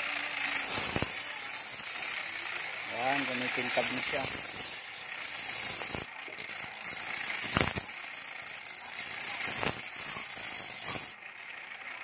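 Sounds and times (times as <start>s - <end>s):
blade grinding on wheel: 0.0s - 12.0s.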